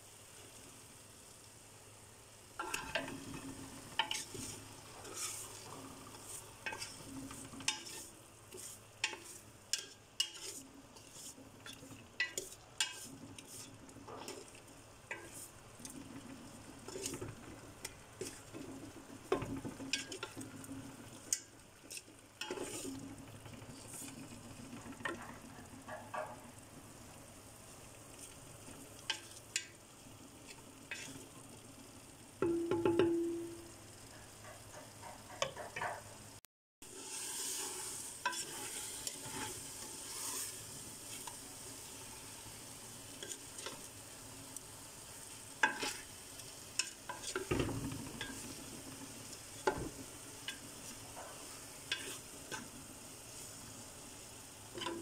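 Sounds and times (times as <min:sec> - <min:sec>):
low sizzle: 0:00.0 - 0:55.0
wooden spoon scraping metal pot: 0:02.6 - 0:16.0, 0:16.8 - 0:20.6, 0:21.3 - 0:23.0, 0:30.5 - 0:31.2, 0:36.8 - 0:41.4, 0:45.6 - 0:46.1, 0:46.8 - 0:48.6, 0:49.5 - 0:52.7.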